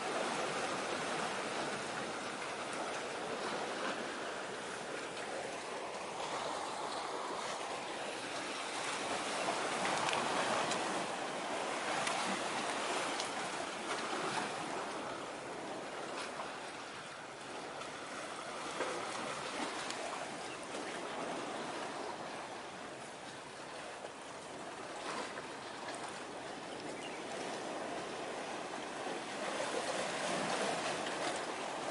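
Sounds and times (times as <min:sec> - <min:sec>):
sea waves washing in: 0:00.0 - 0:31.9.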